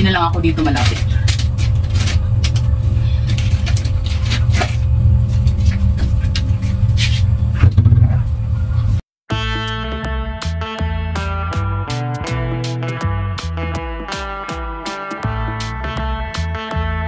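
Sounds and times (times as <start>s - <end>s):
low rumble: 0.0s - 9.0s
music: 9.3s - 17.0s.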